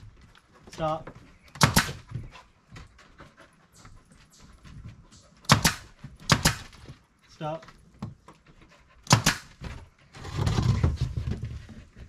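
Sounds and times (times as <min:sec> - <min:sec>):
nail gun firing into wood: 0:01.5 - 0:02.1, 0:05.4 - 0:06.8, 0:09.0 - 0:09.6.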